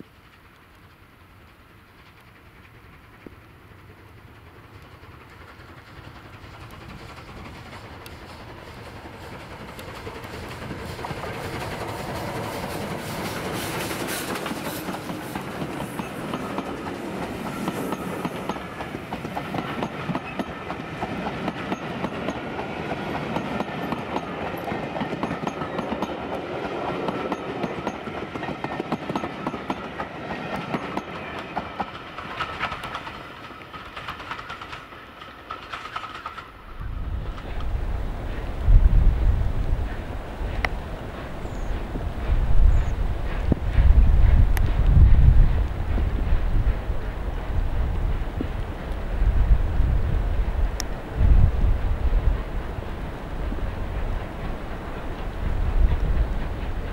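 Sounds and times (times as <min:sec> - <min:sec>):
train wheels clicking over rail joints: 0:00.0 - 0:56.9
wind buffeting microphone: 0:36.7 - 0:56.9.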